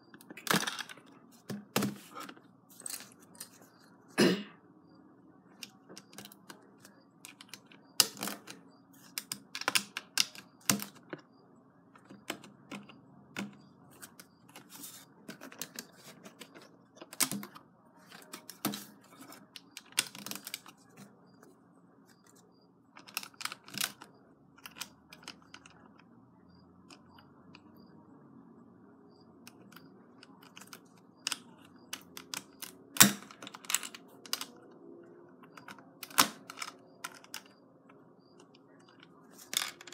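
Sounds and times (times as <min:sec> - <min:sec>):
plastic bricks clicking: 0:07.2 - 0:11.2, 0:29.5 - 0:34.6.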